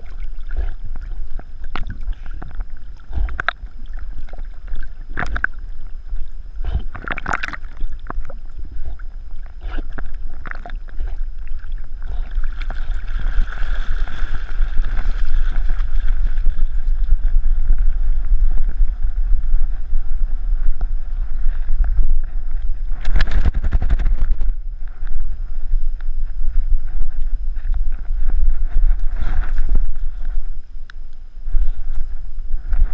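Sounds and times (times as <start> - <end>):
water splashing around swimming dog: 9.8 - 17.2
muffled wind rumble on housing: 14.2 - 32.9.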